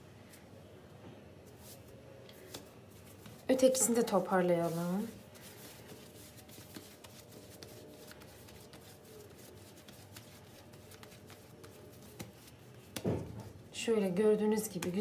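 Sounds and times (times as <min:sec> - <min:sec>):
hands rounding bread dough: 0:02.4 - 0:13.6.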